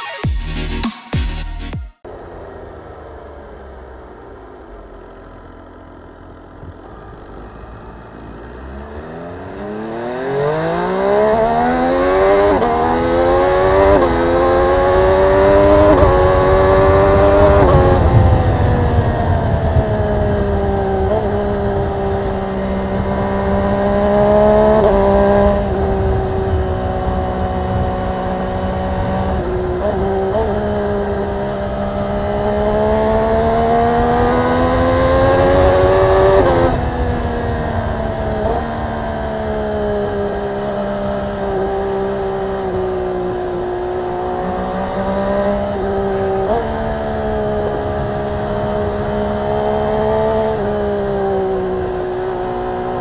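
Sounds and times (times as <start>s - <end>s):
motorcycle engine revving: 2.0s - 53.0s.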